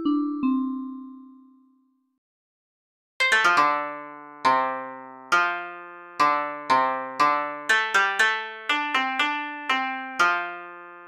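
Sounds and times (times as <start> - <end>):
melody of struck notes: 3.2 - 11.0.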